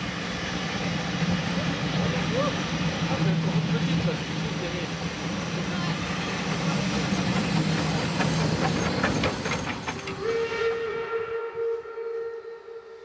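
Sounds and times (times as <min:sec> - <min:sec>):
train coaches rumbling: 0:00.0 - 0:11.2
train wheels clattering: 0:06.1 - 0:10.6
steam locomotive whistle: 0:10.0 - 0:13.0.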